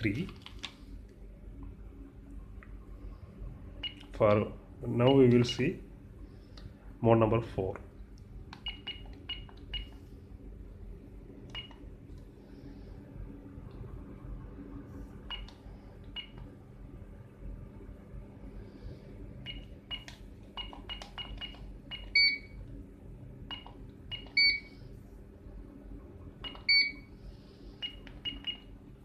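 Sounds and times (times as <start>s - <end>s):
keypad key press beeps: 3.8s - 4.1s, 8.6s - 10.0s, 11.5s - 11.8s, 15.3s - 16.4s, 19.4s - 22.6s, 23.5s - 24.7s, 26.4s - 27.0s, 27.8s - 28.7s
longer keypad beeps: 3.8s - 4.1s, 8.6s - 10.0s, 11.5s - 11.8s, 19.5s - 22.6s, 23.5s - 24.8s, 26.4s - 27.1s, 27.8s - 28.7s.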